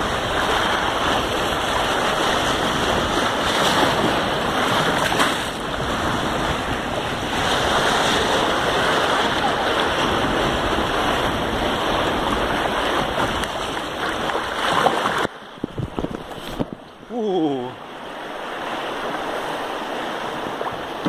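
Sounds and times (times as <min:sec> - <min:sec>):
white water rushing and splashing: 0:00.0 - 0:21.0.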